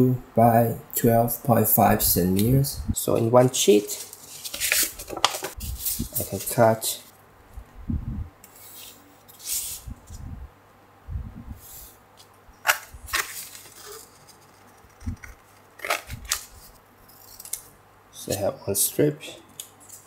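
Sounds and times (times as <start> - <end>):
sandpaper rustling: 3.8 - 6.6, 8.6 - 9.9.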